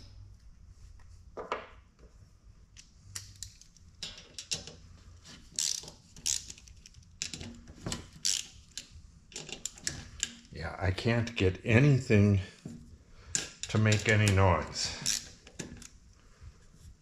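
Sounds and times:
clicks and metallic rattles: 2.8 - 4.8, 5.6 - 10.5, 13.3 - 16.0.

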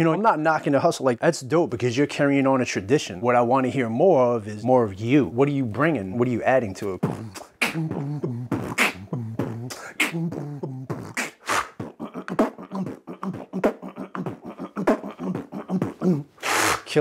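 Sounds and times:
man beatboxing drum sounds: 5.8 - 17.0.

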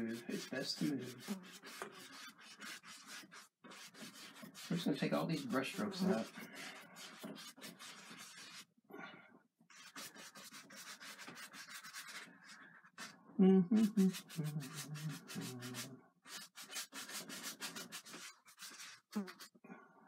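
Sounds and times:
brush scrubbing canvas: 0.0 - 8.7, 9.7 - 13.2, 13.8 - 19.6
low voice-like hum: 13.4 - 16.0.

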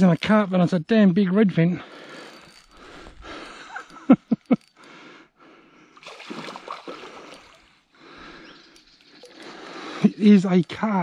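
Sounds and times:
fish splashing in water: 6.0 - 7.7.

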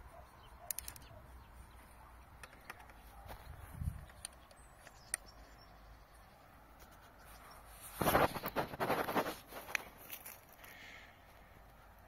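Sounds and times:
tripod head clicks: 0.6 - 1.2, 3.8 - 5.3
footsteps on dry leaves: 7.7 - 10.9.

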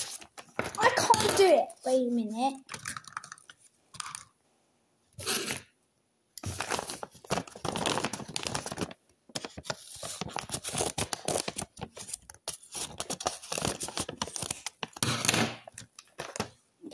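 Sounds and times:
paper bag crinkling: 6.4 - 15.0.

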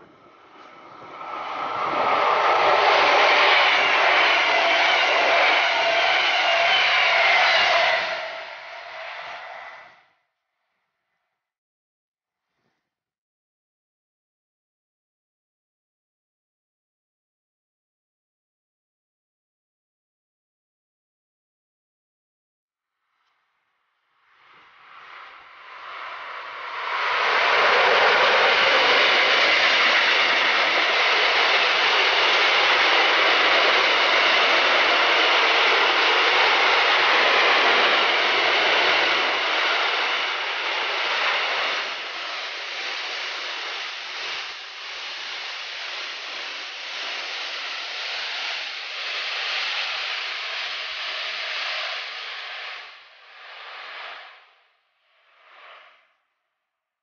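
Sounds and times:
train wheels rolling on rails: 0.0 - 9.9, 24.9 - 54.3.

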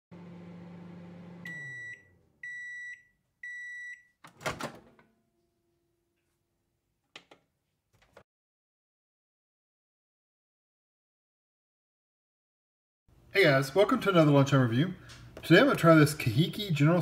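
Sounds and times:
microwave oven humming: 0.1 - 2.7
microwave beeps: 1.1 - 4.2.

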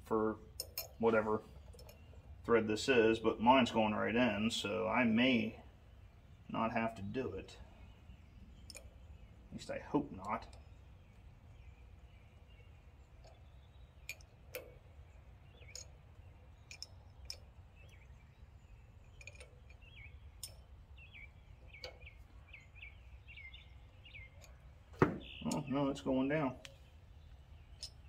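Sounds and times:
wrench clicking on metal: 8.7 - 8.9, 15.6 - 17.5, 19.1 - 19.8.

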